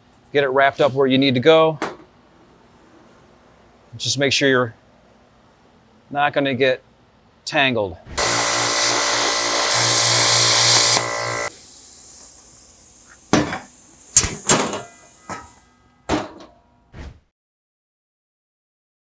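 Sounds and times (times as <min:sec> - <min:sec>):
plasma cutter arc hissing: 0:08.2 - 0:15.6
faint hiss: 0:10.7 - 0:16.0.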